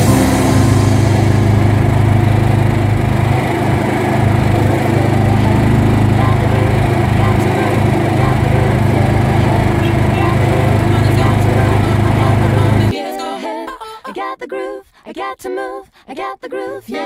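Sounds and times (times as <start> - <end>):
vehicle engine humming: 0.0 - 12.9.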